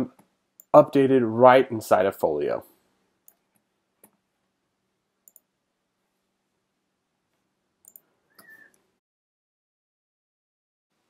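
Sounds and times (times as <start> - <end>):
faint computer mouse clicks: 5.2 - 5.5, 7.8 - 8.8.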